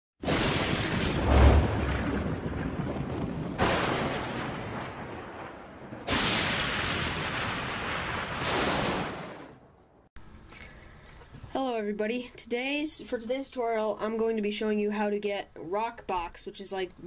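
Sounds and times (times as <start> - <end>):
thunder crashes with rumble: 0.2 - 9.6
low boom: 0.2 - 9.8.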